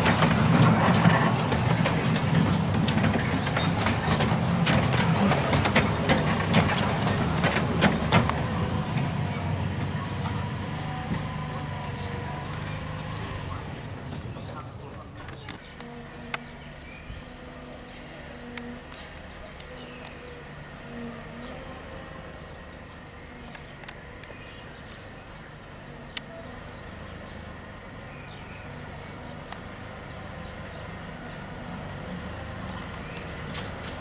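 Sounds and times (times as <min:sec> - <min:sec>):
miniature locomotive engine hum: 0:00.0 - 0:34.0
sharp clicks: 0:23.5 - 0:24.4.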